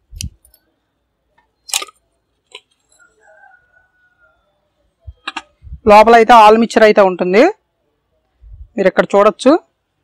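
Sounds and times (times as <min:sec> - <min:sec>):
sharp metallic clicks: 0:01.4 - 0:02.8.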